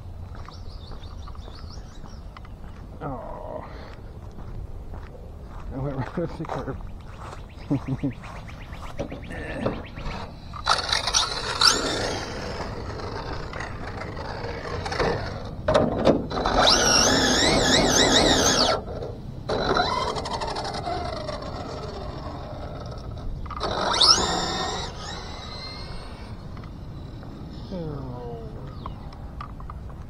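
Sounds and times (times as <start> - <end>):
electric motor whining: 9.0 - 27.5.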